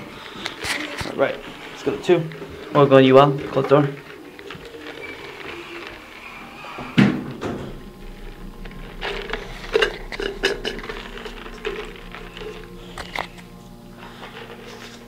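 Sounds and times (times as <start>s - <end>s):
elevator low hum: 4.7s - 15.0s.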